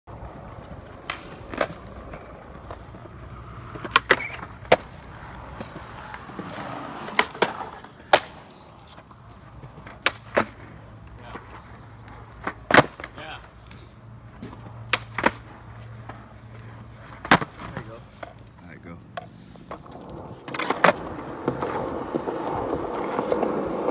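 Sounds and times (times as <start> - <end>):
skateboard tail clacks: 0.1 - 18.5
skateboard rolling on concrete: 0.1 - 23.9.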